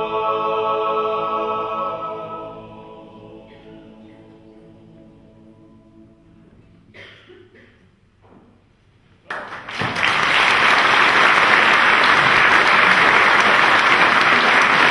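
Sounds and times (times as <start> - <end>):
audience applause: 9.3 - 14.9.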